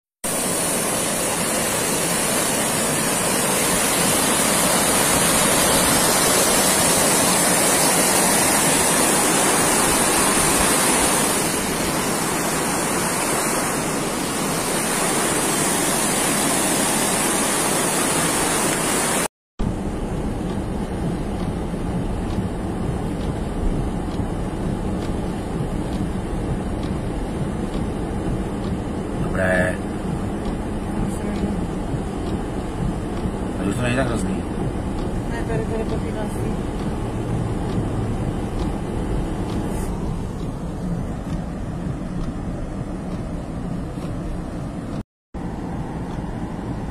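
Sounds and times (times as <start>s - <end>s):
floodwater rushing down street: 0.2s - 46.9s
car interior rumble: 19.6s - 46.9s.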